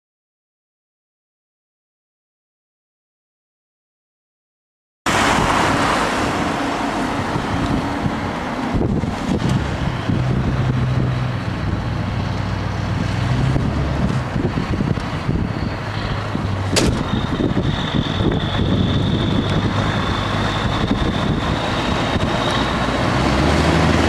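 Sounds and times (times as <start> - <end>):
diesel truck engine rumbling: 5.1 - 24.0
wind buffeting microphone: 5.1 - 24.0.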